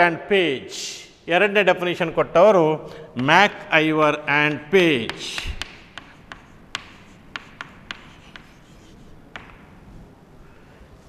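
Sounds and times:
chalk tapping on chalkboard: 4.5 - 9.7
chalk scratching: 5.0 - 9.6.

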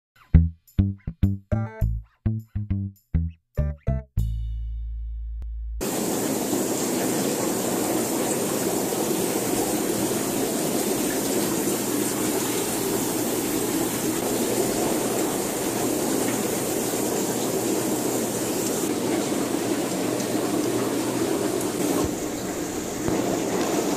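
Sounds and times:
low music note: 0.2 - 5.8
aquarium water and pumps rushing: 5.8 - 23.9.

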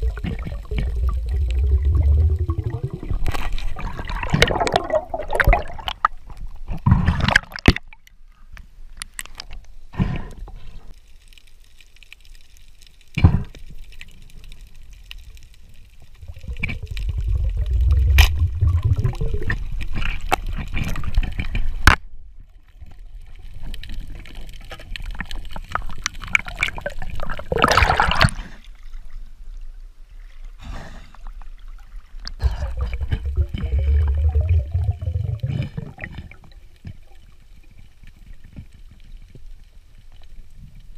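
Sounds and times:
bubbling bursts: 0.0 - 6.1, 16.2 - 19.9, 26.3 - 28.4, 32.4 - 36.6
water sloshing and gurgling underwater: 0.0 - 40.9.

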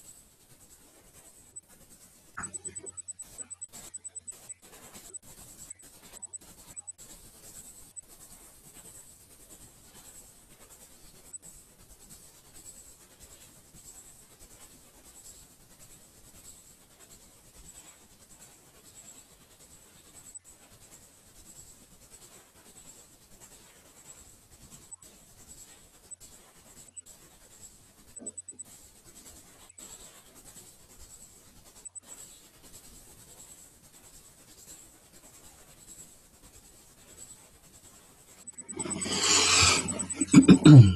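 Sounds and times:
high-pitched whine: 2.4 - 4.5, 38.5 - 40.9
microphone hiss: 38.7 - 40.9.

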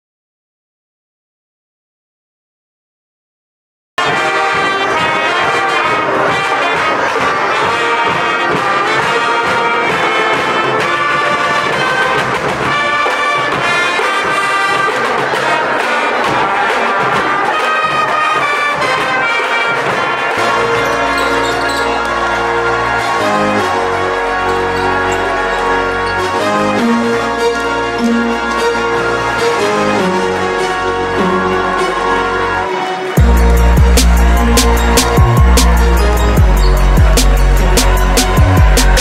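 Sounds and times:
brass and saxophones playing a tune: 4.0 - 39.0
marching snare and bass drums: 33.2 - 39.0.

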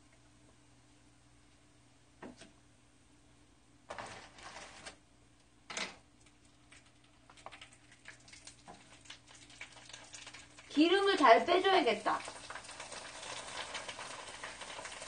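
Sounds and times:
paper towel rustle: 3.9 - 5.0
frying oil crackling: 6.2 - 15.0.

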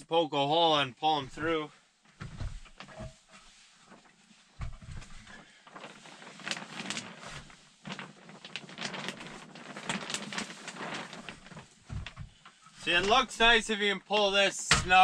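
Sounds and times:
plastic sheet crinkling: 2.3 - 13.6.

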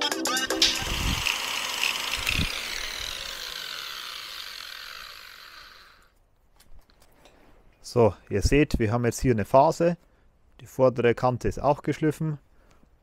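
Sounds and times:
angle grinder whirring down: 0.3 - 6.2.

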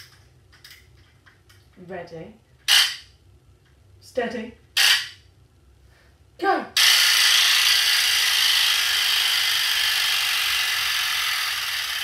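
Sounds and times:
wind-up toy whirring clatter: 4.8 - 5.2, 6.8 - 12.0.

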